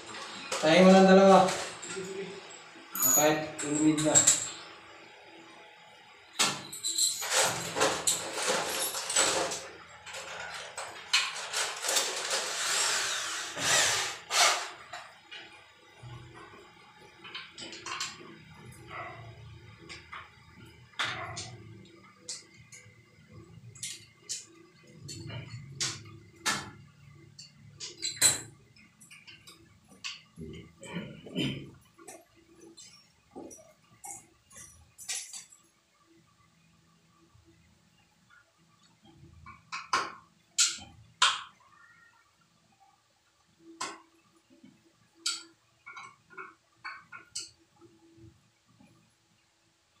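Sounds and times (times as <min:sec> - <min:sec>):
power drill running: 0:11.5 - 0:14.9
tools clicking and tapping on tile: 0:17.2 - 0:19.2, 0:19.8 - 0:35.7, 0:38.9 - 0:41.7, 0:43.7 - 0:49.0.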